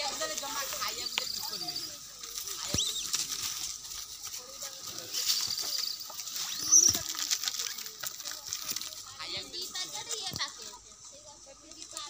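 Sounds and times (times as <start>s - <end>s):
monkeys scuffling and rustling: 0.0s - 12.0s
monkeys squealing: 0.6s - 3.3s, 5.0s - 7.9s.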